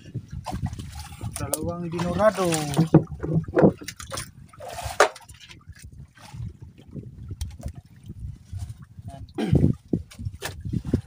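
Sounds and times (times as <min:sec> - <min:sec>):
water trickling and lapping: 0:00.0 - 0:11.0
knocks on boat: 0:02.6 - 0:04.1.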